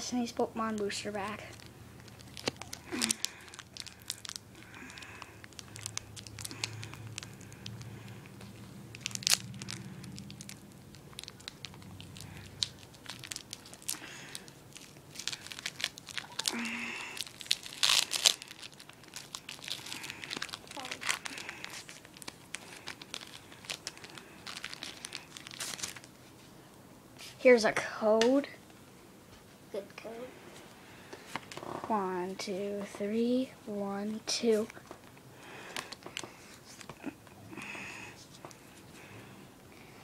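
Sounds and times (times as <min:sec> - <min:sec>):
foil wrapper crinkling and tearing: 0:00.6 - 0:26.3.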